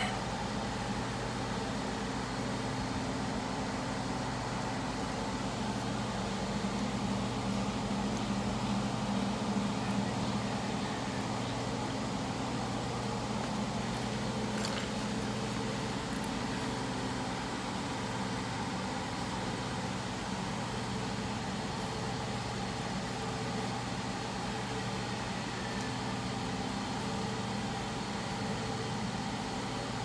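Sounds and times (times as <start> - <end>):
steady mechanical hum: 0.0 - 30.0.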